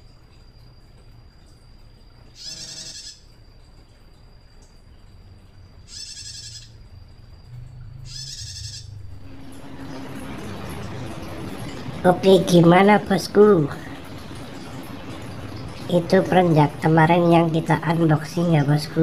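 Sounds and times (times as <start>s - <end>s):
bird trilled calls: 2.4s - 3.3s, 5.8s - 6.8s, 8.0s - 10.0s.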